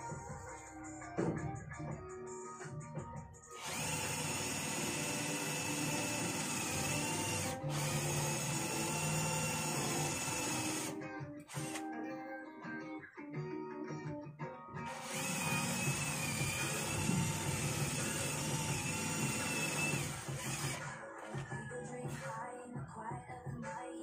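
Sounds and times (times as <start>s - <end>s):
background music: 0.0s - 24.0s
cordless drill drilling into wood: 3.6s - 11.8s, 14.9s - 20.8s.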